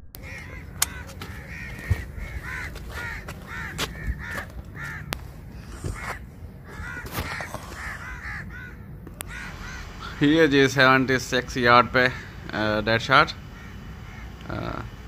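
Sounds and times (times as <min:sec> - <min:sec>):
sharp clicks: 0:00.1 - 0:01.4
crows cawing: 0:00.2 - 0:15.0.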